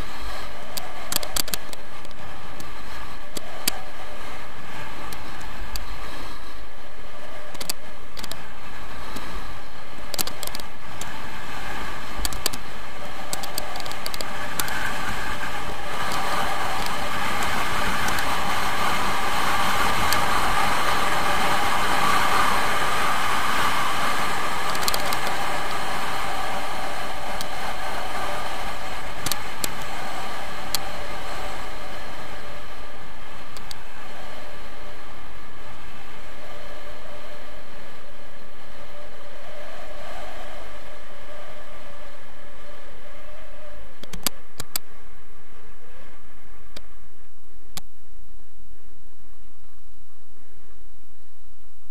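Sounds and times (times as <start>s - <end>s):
sharp clicks of skis: 0.0s - 6.6s, 7.2s - 22.6s, 23.6s - 31.6s
skis hissing and scraping: 0.0s - 43.8s
wind rushing over microphone: 0.0s - 51.9s.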